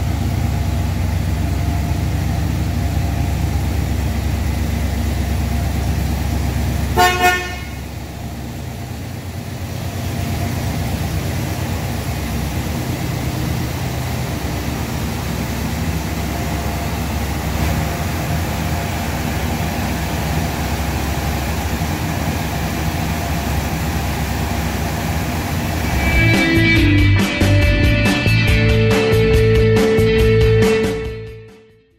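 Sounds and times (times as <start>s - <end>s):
car engine idling: 0.0s - 31.1s
car horn toots: 6.9s - 7.9s.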